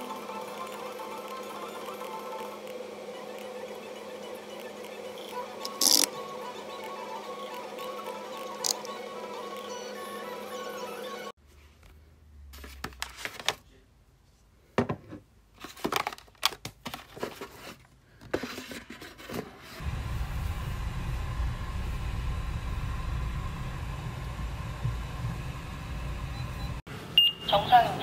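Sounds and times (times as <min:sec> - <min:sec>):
car cabin rumble: 0:19.8 - 0:26.8.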